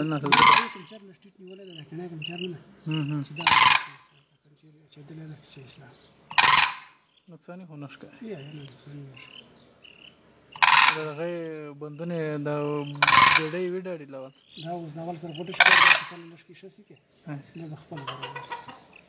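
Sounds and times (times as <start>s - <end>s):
cranes calling harshly: 0.0s - 4.3s, 6.1s - 7.2s, 8.1s - 11.5s, 12.6s - 13.8s, 14.4s - 16.4s, 17.8s - 19.0s
soft wavering crane calls: 0.0s - 7.3s, 8.1s - 19.0s
high insect buzz: 0.0s - 19.0s.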